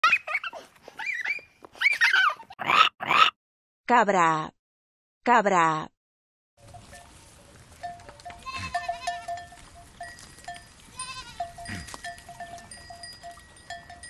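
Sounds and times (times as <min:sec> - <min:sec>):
small bells ringing: 0:07.8 - 0:14.0
goats bleating: 0:08.3 - 0:09.5, 0:10.9 - 0:12.2.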